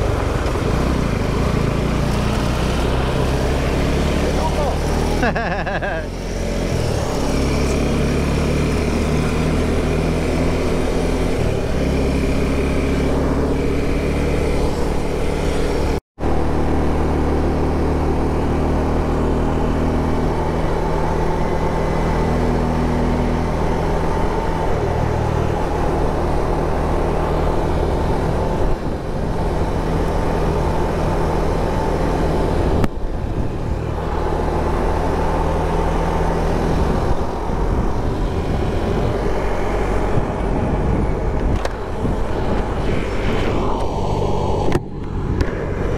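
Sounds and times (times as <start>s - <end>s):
rushing wind noise: 19.4s - 45.9s.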